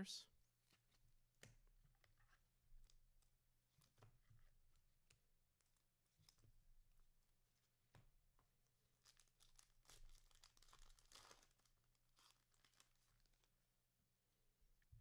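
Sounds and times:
wrapper tearing and crinkling: 0:09.0 - 0:13.5.

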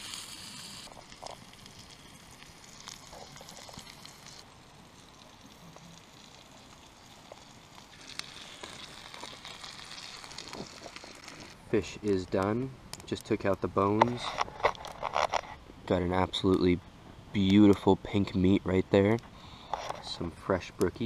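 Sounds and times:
fish sizzling in skillet: 0:00.0 - 0:11.6.

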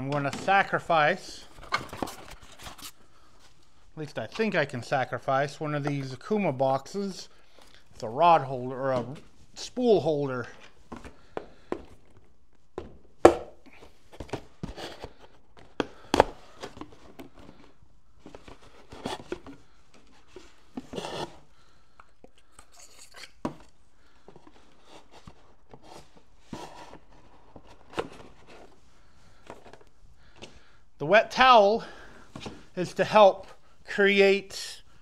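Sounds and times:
box scraping and knocking: 0:14.1 - 0:21.5, 0:24.3 - 0:28.8.

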